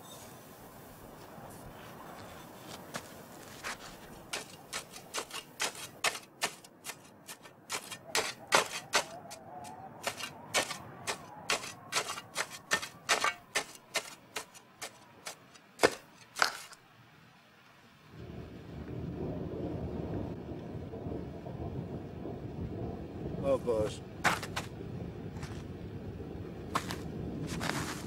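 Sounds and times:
spades digging into soil: 3.6 - 16.8, 24.3 - 24.7, 26.8 - 28.0.

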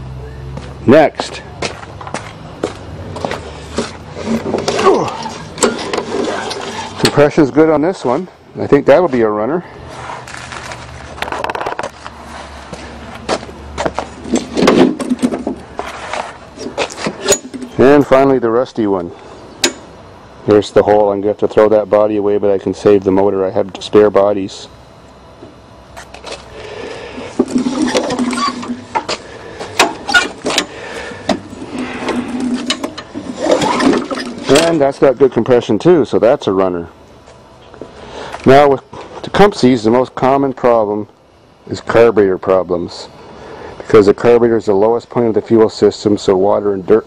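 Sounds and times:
lawnmower clattering on hard ground: 27.4 - 29.1.

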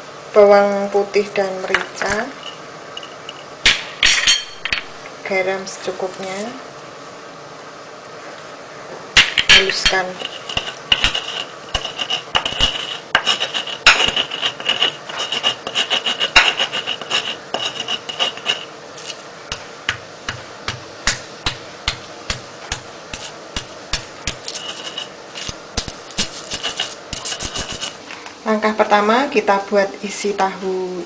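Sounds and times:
pestle knocks: 9.2 - 9.9
stone pestle grinding in mortar: 9.2 - 19.7, 21.9 - 28.0.

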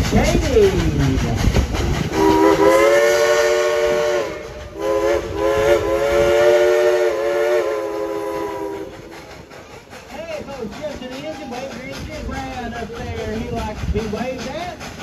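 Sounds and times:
steam locomotive whistle chord: 2.2 - 9.0.

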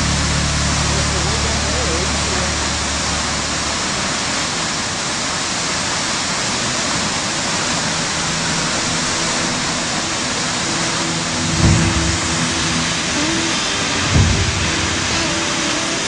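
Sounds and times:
rushing water: 0.0 - 16.0
faint low musical tones: 7.5 - 15.7.

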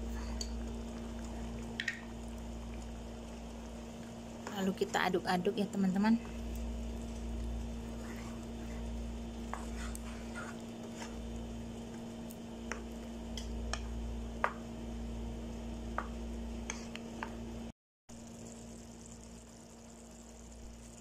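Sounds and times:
steady low hum: 0.0 - 17.7
taps and clicks against pan: 1.8 - 2.0
spatula scraping frying pan: 9.4 - 11.2.

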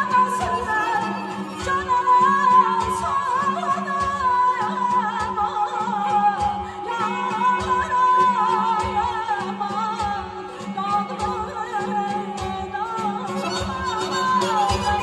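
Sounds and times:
woman singing into a microphone: 0.0 - 15.0
drum beating: 12.3 - 15.0.

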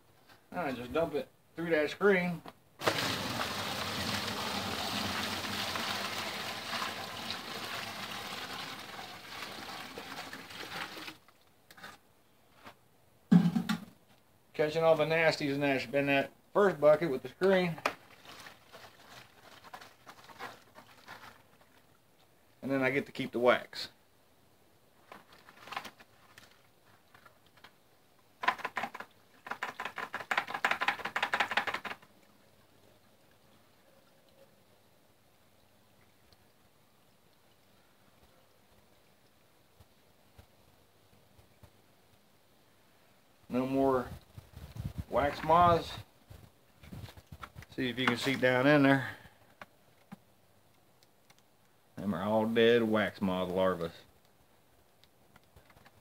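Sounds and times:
water pouring through a screen: 2.8 - 11.5, 17.6 - 22.1, 28.4 - 40.3
rapid light clicking and rattling: 28.4 - 32.1.

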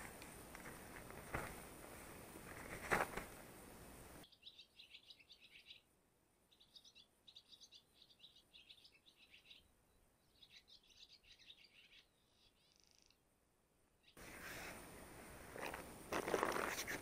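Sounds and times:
rustling noise: 0.0 - 4.2, 14.2 - 17.0
songbird chirping: 4.2 - 14.2.

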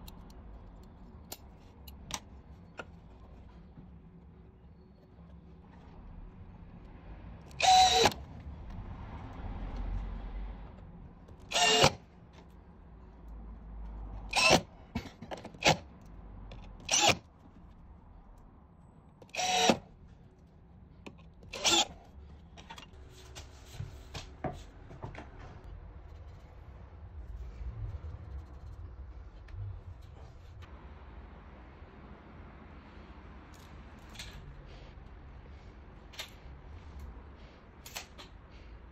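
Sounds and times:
clicks and handling noise: 0.0 - 4.3, 37.8 - 38.5
cordless drill driving screws: 7.6 - 8.2, 11.5 - 12.0, 14.3 - 14.6, 16.8 - 17.3, 19.3 - 19.8, 21.5 - 22.0.

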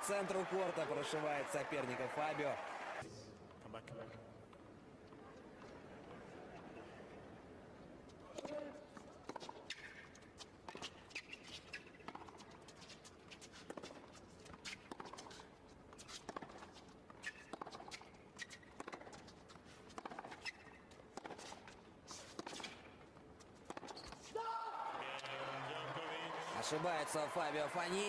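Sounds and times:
tennis ball hits and bounces: 10.6 - 12.4, 13.7 - 15.4, 16.0 - 22.9, 23.6 - 24.3.

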